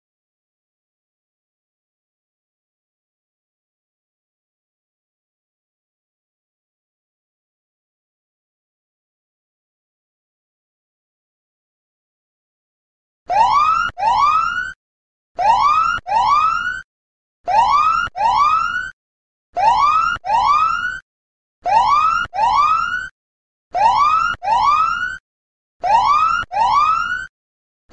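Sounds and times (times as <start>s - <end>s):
siren alarm rising whoops: 13.3s - 14.8s, 15.4s - 16.8s, 17.5s - 19.0s, 19.6s - 21.0s, 21.6s - 23.1s, 23.8s - 25.2s, 25.8s - 27.3s.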